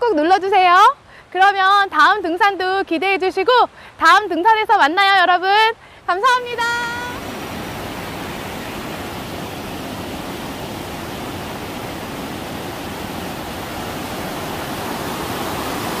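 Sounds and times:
stream rushing: 5.9 - 16.0.

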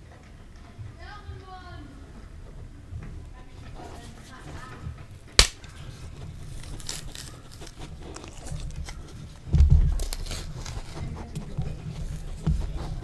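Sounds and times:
banana peel tearing: 5.4 - 11.1.

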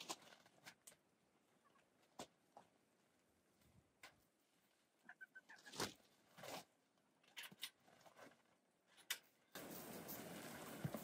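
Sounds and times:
steady hiss: 9.5 - 11.0
chickens scratching in straw: 9.6 - 11.0.

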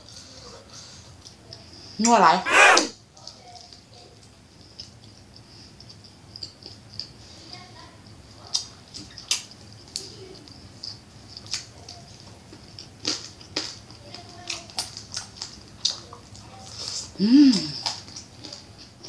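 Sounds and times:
crisp chewing crunches: 8.6 - 19.0
person humming: 17.2 - 17.7.

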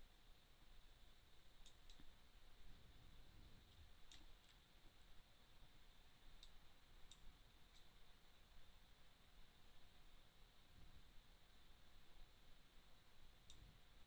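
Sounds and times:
low steady hiss: 0.0 - 14.0
computer mouse clicks: 1.6 - 2.1, 4.0 - 4.6, 6.4 - 8.0, 13.4 - 13.8.

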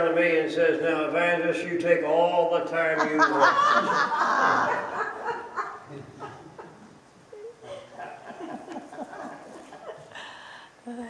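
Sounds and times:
congregation laughing: 2.6 - 10.4.

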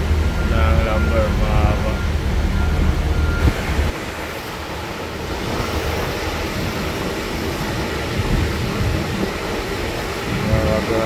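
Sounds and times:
forklift engine running: 0.0 - 10.8.

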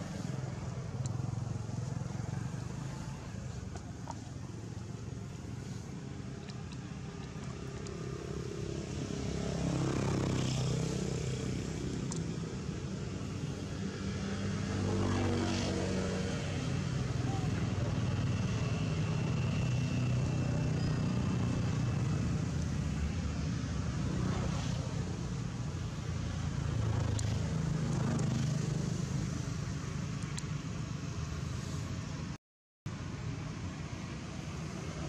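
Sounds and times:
motor vehicles passing: 0.0 - 32.3.

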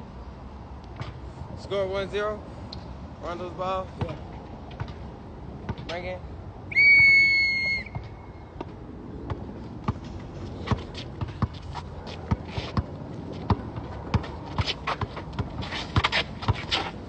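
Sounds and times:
basketball bouncing on asphalt: 4.0 - 6.1, 6.8 - 17.0
referee's whistle blast: 6.7 - 8.0
players' footsteps: 7.9 - 17.0.

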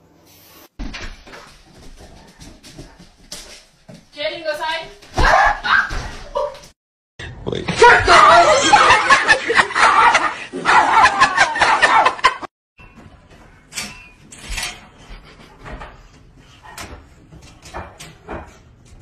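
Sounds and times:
people laughing and talking: 8.2 - 12.3.

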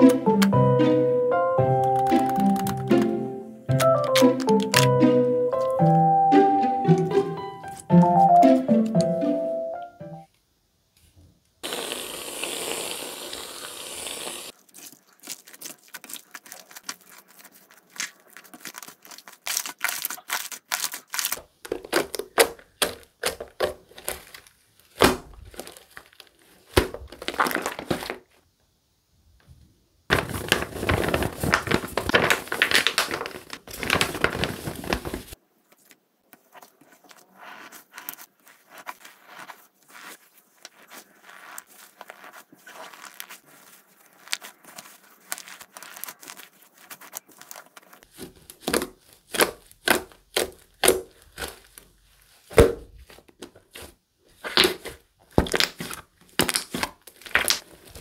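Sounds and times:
aerosol foam hissing from can: 11.6 - 14.6
slime squeezed by hand: 11.6 - 22.1, 36.6 - 51.8.

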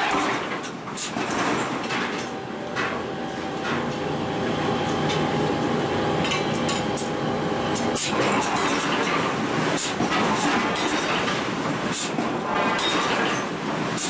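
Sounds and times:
mechanical rumble: 0.5 - 9.6.

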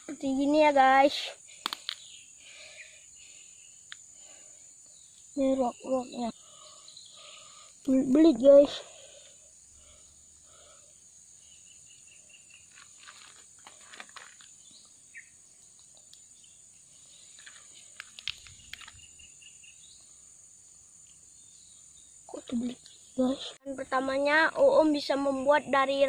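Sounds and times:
insect chorus chirring: 0.0 - 26.0
grass stems rustling: 12.7 - 14.5, 17.3 - 19.0.

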